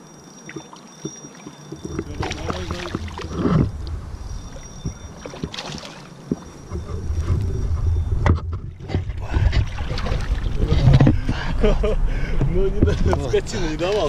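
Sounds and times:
low rumbling: 1.9s - 5.6s, 6.2s - 14.0s
fish splashing at water surface: 5.2s - 6.2s.

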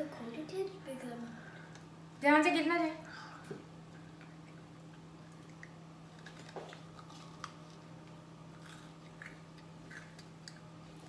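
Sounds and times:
steady low hum: 0.0s - 11.0s
biting and chewing: 5.3s - 11.0s.

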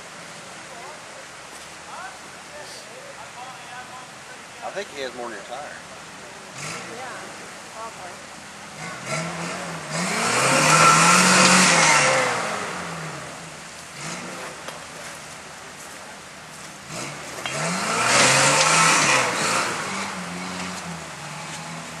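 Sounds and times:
buggy engine revving: 6.4s - 22.0s.

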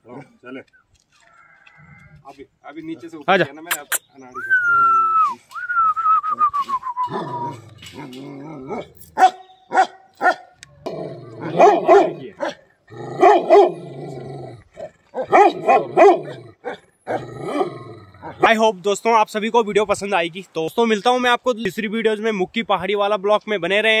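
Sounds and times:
dog barking deeply: 8.6s - 14.2s, 14.8s - 18.6s.

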